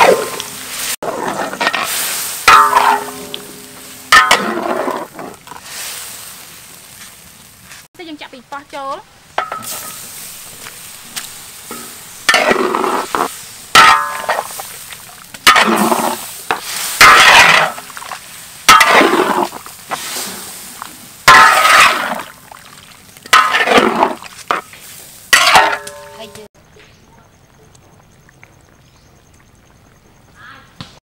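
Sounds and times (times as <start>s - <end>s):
metal spatula scraping a wok: 0.0s - 5.8s, 9.4s - 14.8s, 15.4s - 22.3s, 23.3s - 26.4s
light sizzling: 0.0s - 26.5s.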